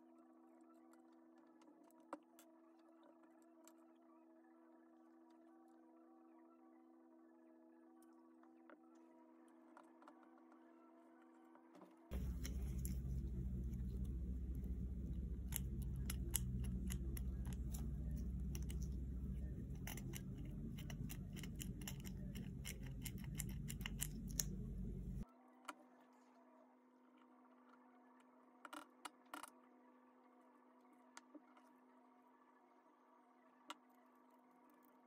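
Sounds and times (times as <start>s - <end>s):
low steady rumble: 12.1s - 25.3s.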